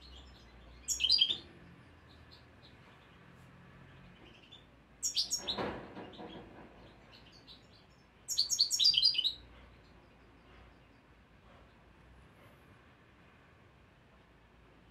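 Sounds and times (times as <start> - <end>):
faint bird chirps: 0.0 - 3.1, 4.2 - 5.6, 7.1 - 11.2
goldfinch twittering song: 0.0 - 3.1, 4.2 - 5.6, 7.1 - 9.4.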